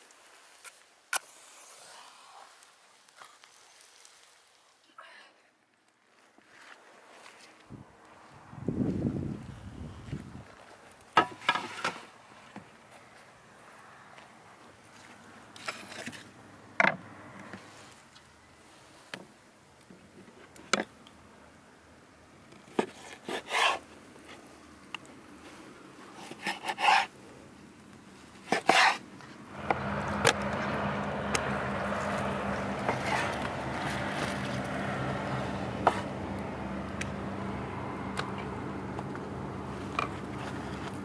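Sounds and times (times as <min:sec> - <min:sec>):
rushing noise with low hum: 0:29.4 - 0:41.0.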